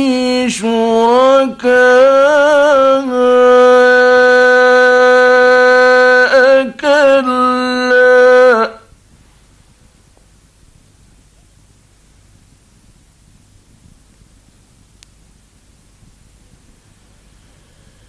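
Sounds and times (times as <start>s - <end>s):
man chanting: 0.0s - 8.9s.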